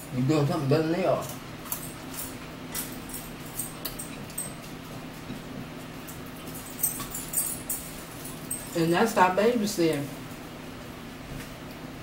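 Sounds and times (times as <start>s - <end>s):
steady low hum: 0.0s - 12.0s
chewing: 1.3s - 5.6s.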